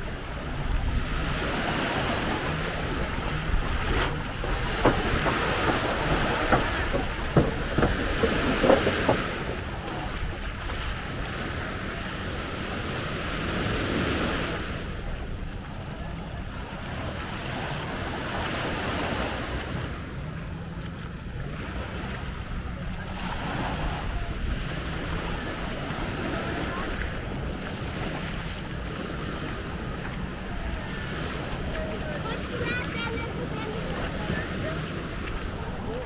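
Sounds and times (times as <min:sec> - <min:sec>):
wind rumble on microphone: 0:00.0 - 0:32.8
sea waves washing on shore: 0:00.0 - 0:36.0
short knocks: 0:03.6 - 0:09.7.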